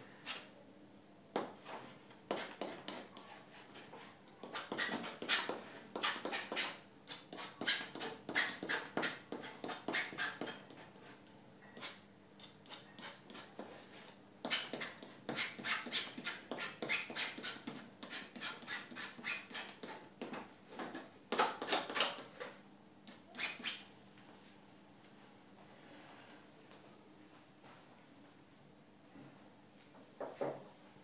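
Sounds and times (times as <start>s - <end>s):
palette knife scraping canvas: 1.7s - 10.8s, 11.8s - 20.0s.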